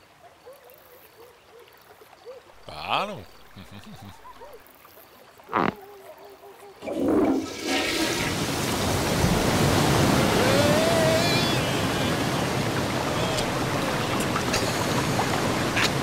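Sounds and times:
water gushing through sluice gate: 6.8 - 16.0
wavering cry: 10.0 - 16.0.

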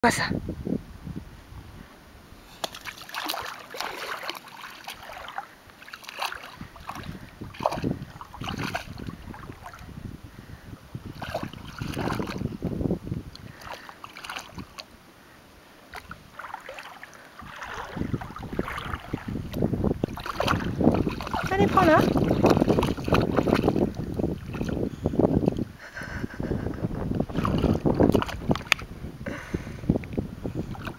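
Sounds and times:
dog paws splashing in water: 2.6 - 9.9, 11.1 - 12.6, 13.3 - 14.9, 15.9 - 25.6, 27.3 - 28.9.

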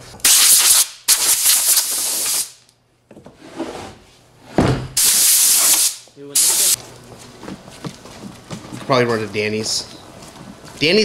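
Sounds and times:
air blow gun hissing: 0.2 - 2.6, 5.0 - 6.8.

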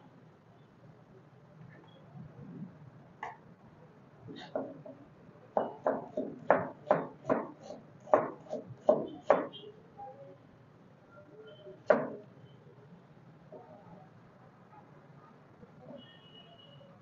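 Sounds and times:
knife chopping on plastic board: 5.6 - 9.5.

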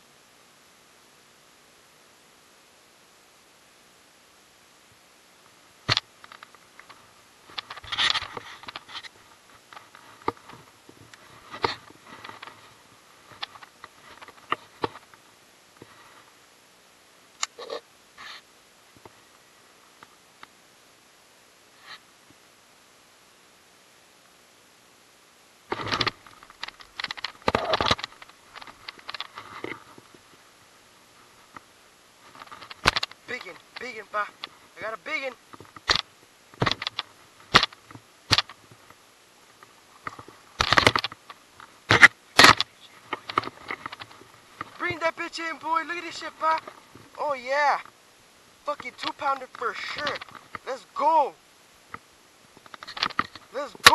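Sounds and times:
rod handling scrapes: 7.6 - 10.6.

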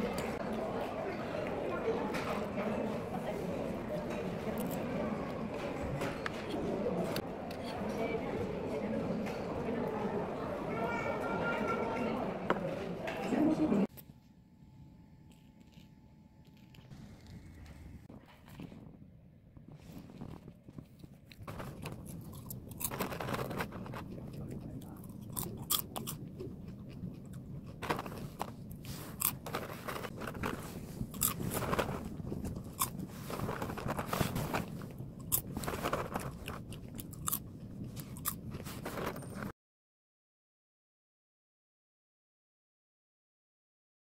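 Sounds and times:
crisp popcorn crunching bites: 15.3 - 17.4, 20.1 - 39.5.

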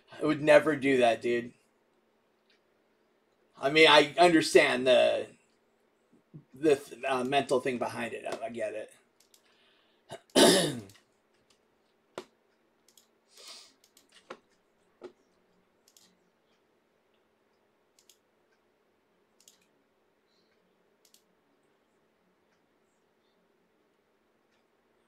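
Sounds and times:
faint steady hum: 0.0 - 25.0
faint clicks and taps: 1.6 - 3.6, 8.2 - 9.6, 10.9 - 13.2, 13.8 - 18.7, 19.4 - 25.0.

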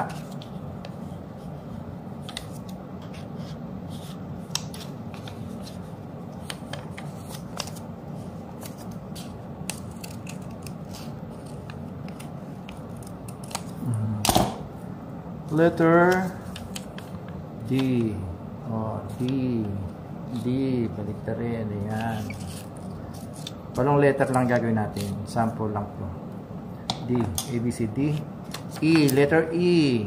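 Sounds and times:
scissors snipping paper: 8.6 - 13.9.

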